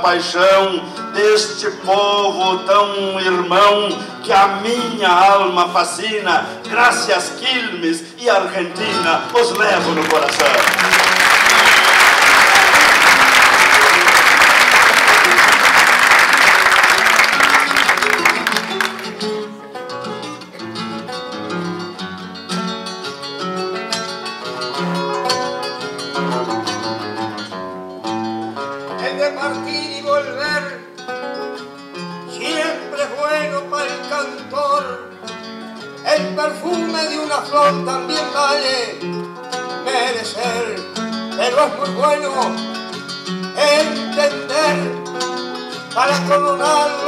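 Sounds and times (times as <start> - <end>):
acoustic guitars plucking: 0.0 - 47.0
audience applauding: 8.9 - 19.4.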